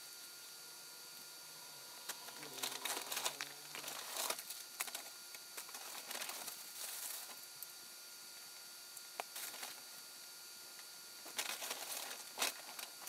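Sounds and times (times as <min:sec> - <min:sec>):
bag and packaging crinkling: 0:02.1 - 0:05.0, 0:05.6 - 0:07.4, 0:11.3 - 0:13.0.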